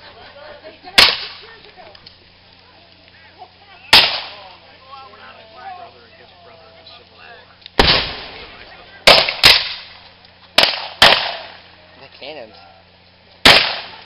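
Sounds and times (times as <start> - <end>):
faint voices: 0.0 - 10.5, 11.4 - 14.0
blank gunshots: 1.0 - 1.4, 3.9 - 4.4, 7.8 - 9.9, 10.6 - 11.6, 13.4 - 14.0.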